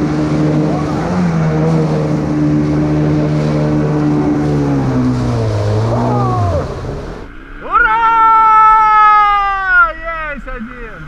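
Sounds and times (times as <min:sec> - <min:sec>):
outboard motor running: 0:00.0 - 0:07.3
river rapids rushing: 0:02.7 - 0:07.8.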